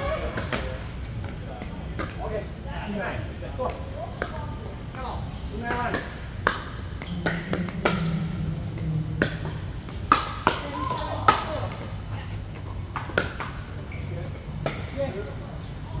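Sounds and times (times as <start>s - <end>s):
voices: 7.0s - 16.0s.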